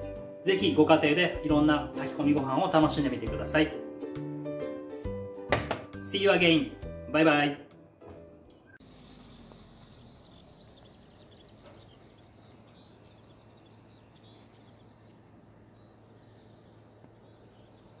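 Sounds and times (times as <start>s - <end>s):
small birds chirping: 8.5s - 18.0s.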